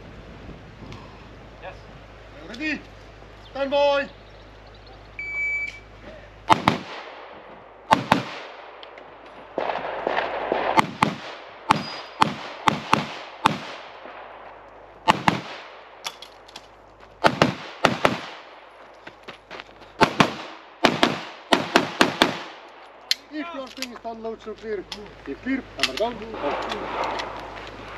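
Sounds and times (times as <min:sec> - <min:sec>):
pistol shots with echo: 0:06.5 - 0:08.8, 0:09.5 - 0:14.4, 0:15.0 - 0:16.2, 0:17.2 - 0:18.6, 0:20.0 - 0:22.6.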